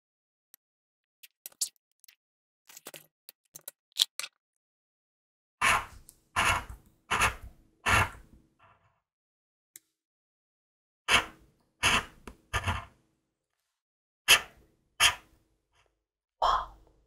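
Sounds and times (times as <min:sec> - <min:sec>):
scratching a scratch card: 0:05.6 - 0:08.2, 0:11.1 - 0:12.9.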